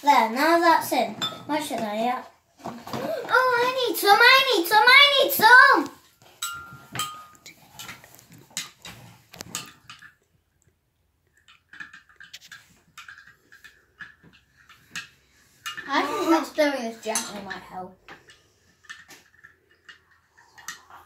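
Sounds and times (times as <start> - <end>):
teaspoon clinking against mug: 6.4 - 7.6.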